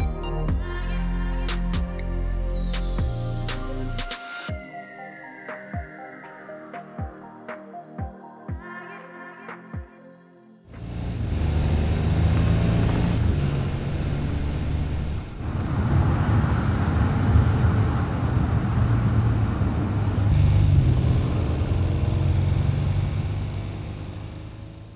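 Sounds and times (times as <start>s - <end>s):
road noise: 10.7s - 24.9s
car engine running: 10.8s - 24.9s.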